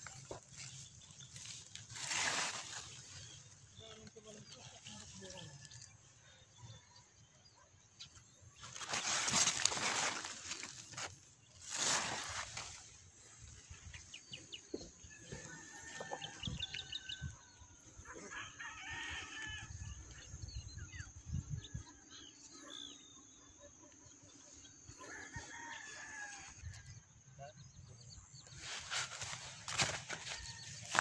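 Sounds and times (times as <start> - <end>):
rooster crowing: 15.2 - 17.5, 25.0 - 26.7.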